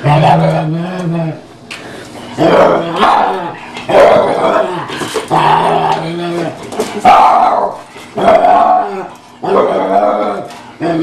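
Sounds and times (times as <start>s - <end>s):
dog growling and barking: 0.0s - 1.4s, 2.4s - 11.0s.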